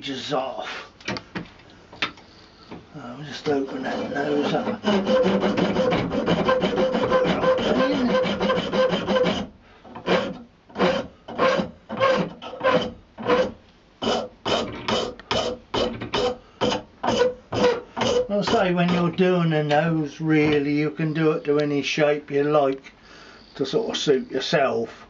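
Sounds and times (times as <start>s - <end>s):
hand file rasping on horn: 3.3s - 19.2s.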